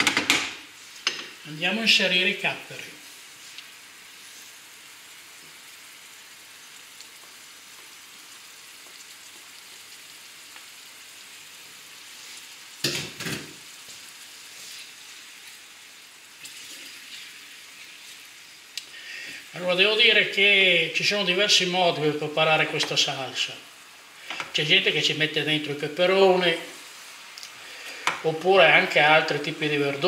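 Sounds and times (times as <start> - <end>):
oil sizzling in a frying pan: 0.4 - 30.0
wooden spoon stirring a pan: 13.5 - 20.0.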